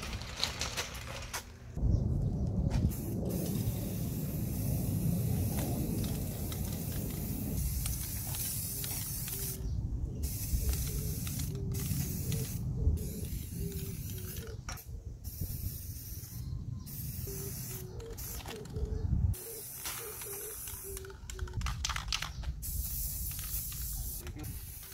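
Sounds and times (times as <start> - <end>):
aerosol spray can hissing: 3.0 - 9.6, 10.3 - 14.6, 15.4 - 18.7, 22.6 - 24.9.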